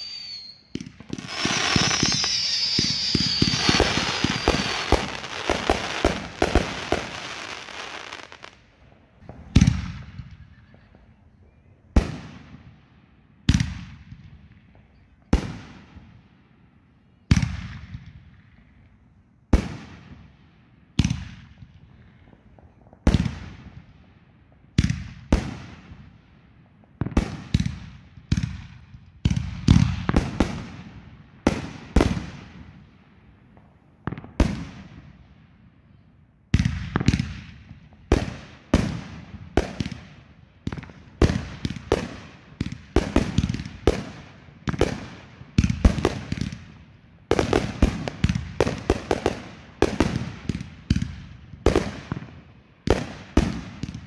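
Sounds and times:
fireworks booming: 0:00.0 - 0:08.6.

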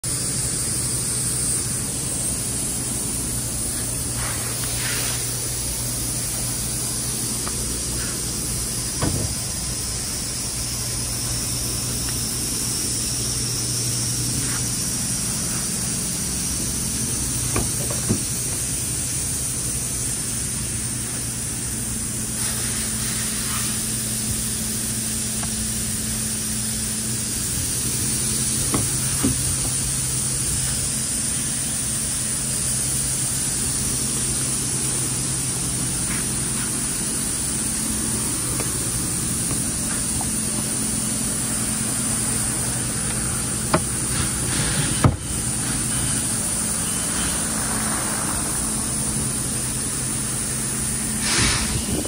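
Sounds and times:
steady hissing noise: 0:00.1 - 0:52.0
low hum: 0:23.6 - 0:52.0.

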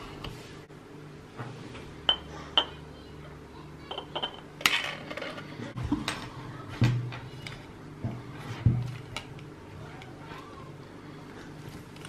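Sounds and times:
glass jars clinking: 0:03.9 - 0:04.8.

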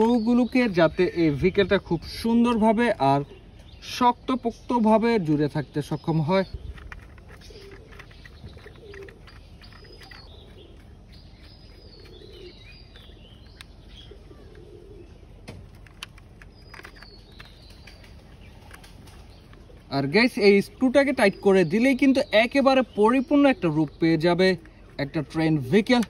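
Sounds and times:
birds chirping: 0:00.0 - 0:26.0
soft cooing: 0:14.1 - 0:15.1.

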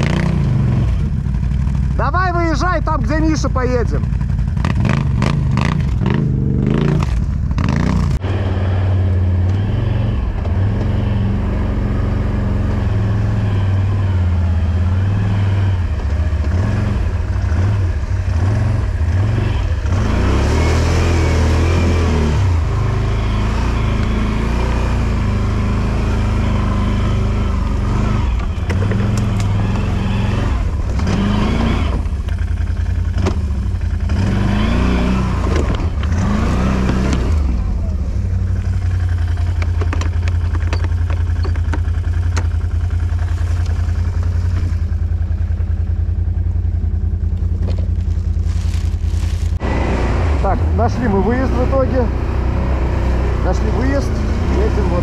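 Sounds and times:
quad bike engine revving: 0:00.0 - 0:55.0
knocks and clatter: 0:28.4 - 0:29.7, 0:39.4 - 0:42.8.

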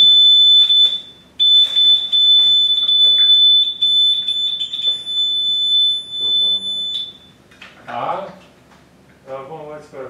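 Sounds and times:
shrill electronic alarm tone: 0:00.0 - 0:07.4.

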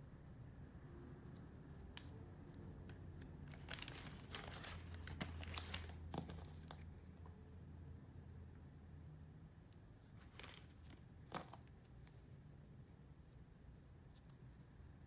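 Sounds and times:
faint low hum: 0:00.0 - 0:15.0
plastic packaging crinkling: 0:03.3 - 0:06.9, 0:10.2 - 0:11.7.

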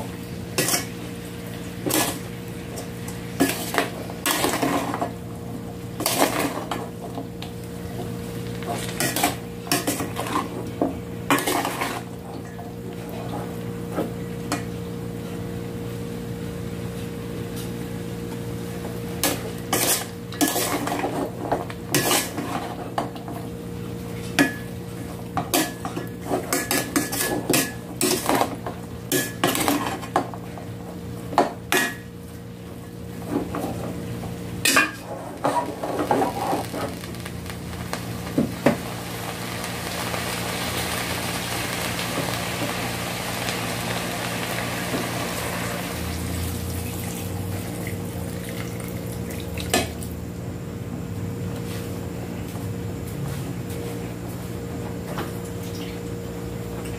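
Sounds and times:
utensil clinking and scraping pot: 0:19.2 - 0:23.0, 0:25.4 - 0:28.5.

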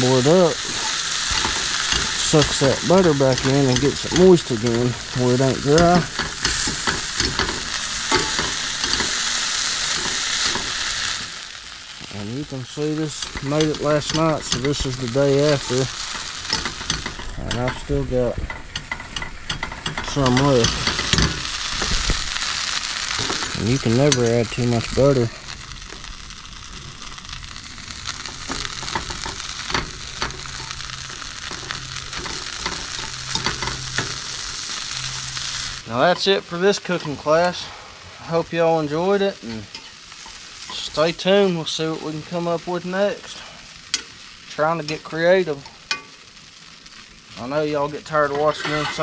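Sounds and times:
butter sizzling in a skillet: 0:00.0 - 0:49.0
fork scraping a pan: 0:48.2 - 0:49.0.

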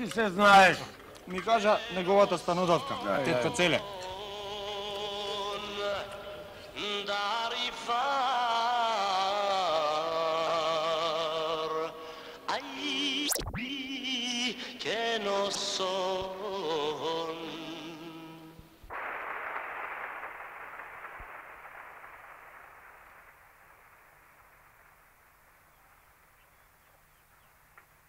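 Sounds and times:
person singing with vibrato: 0:01.5 - 0:18.8.

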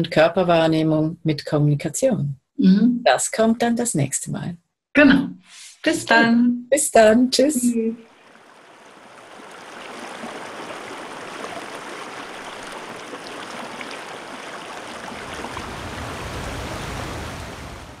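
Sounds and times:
rushing water: 0:08.0 - 0:18.0.

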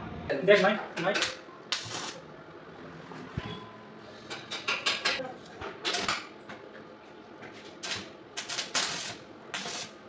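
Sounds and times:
welding arc crackling: 0:01.2 - 0:02.3, 0:07.8 - 0:10.0.

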